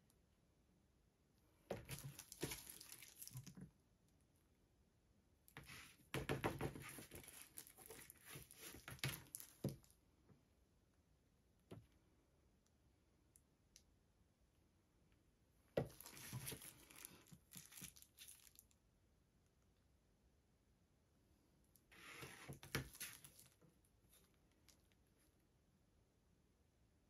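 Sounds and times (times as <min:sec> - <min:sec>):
plastic gloves rustling and crinkling: 0:01.8 - 0:03.6, 0:06.8 - 0:09.6, 0:15.9 - 0:18.6, 0:22.0 - 0:24.2.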